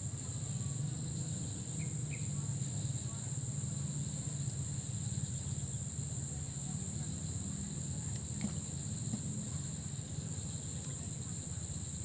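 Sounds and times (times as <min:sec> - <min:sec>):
insect chorus: 0:00.0 - 0:12.0.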